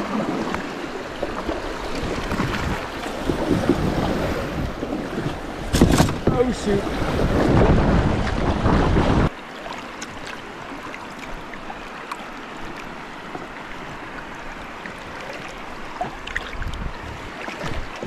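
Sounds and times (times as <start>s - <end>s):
river water washing around kayak: 0.0s - 18.0s
wind buffeting microphone: 1.5s - 9.4s, 15.9s - 18.0s
water drips and splashes: 9.4s - 18.0s.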